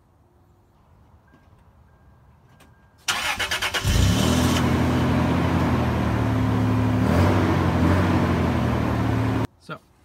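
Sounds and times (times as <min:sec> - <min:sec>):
car engine idling: 0:03.1 - 0:09.5.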